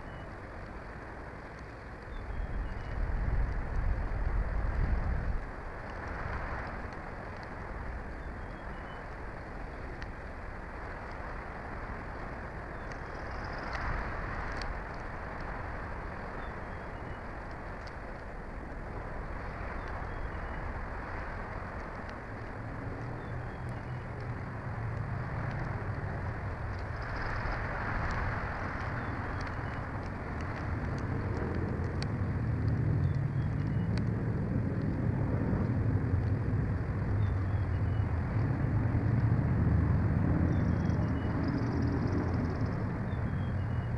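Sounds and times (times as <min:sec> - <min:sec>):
distant engine drone: 0:00.0 - 0:43.9.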